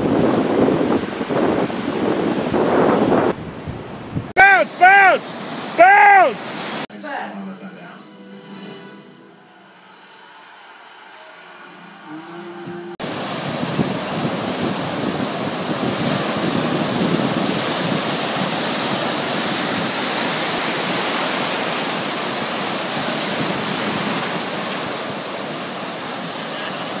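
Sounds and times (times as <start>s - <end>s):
ocean surf breaking: 0.0s - 6.9s, 8.1s - 27.0s.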